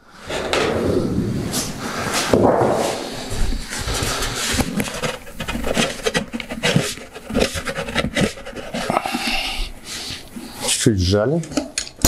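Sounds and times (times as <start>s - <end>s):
sheet metal rubbing: 0.0s - 10.2s.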